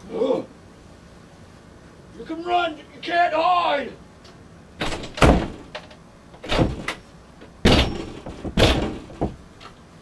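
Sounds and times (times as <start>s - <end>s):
banging on a door: 4.8s - 7.0s, 7.6s - 9.4s
door rattling: 4.8s - 9.5s.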